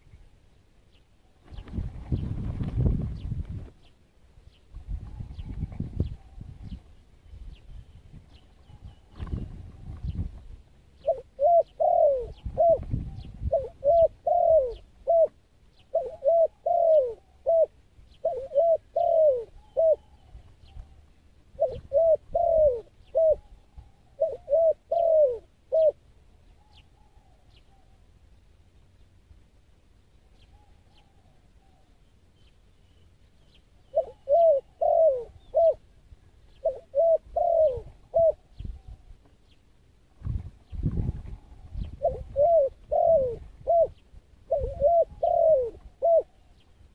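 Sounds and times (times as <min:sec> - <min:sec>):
dove cooing: 0:11.0 - 0:28.0, 0:33.8 - 0:39.1, 0:40.2 - 0:46.6.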